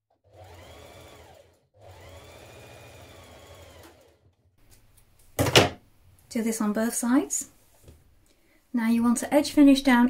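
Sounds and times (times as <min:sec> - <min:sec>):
electric sewing machine stitching: 0:00.1 - 0:04.5.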